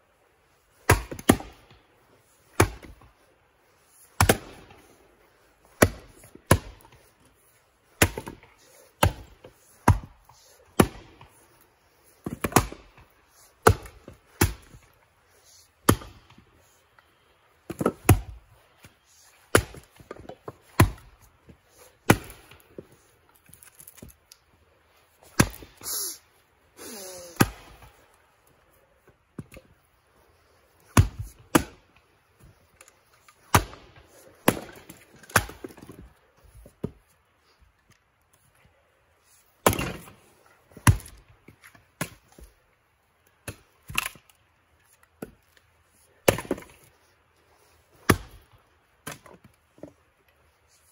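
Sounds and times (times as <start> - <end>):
axes chopping wood: 0.9 - 1.7, 2.6 - 3.0, 4.2 - 4.8, 5.7 - 7.0, 8.0 - 11.4, 12.2 - 14.8, 15.8 - 16.4, 17.7 - 18.4, 19.4 - 21.2, 22.0 - 22.6, 25.3 - 25.8, 27.2 - 27.9, 30.9 - 31.8, 33.4 - 36.9, 39.6 - 41.2, 46.2 - 46.9, 48.0 - 50.0.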